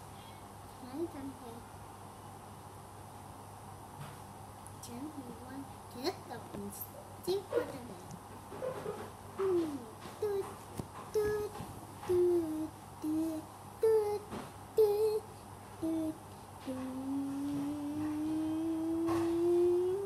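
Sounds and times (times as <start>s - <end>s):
person humming: 9.4s - 20.0s.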